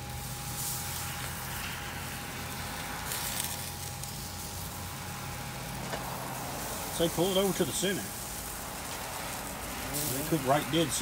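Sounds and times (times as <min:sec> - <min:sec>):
chicken sizzling on grill: 0:00.0 - 0:11.0.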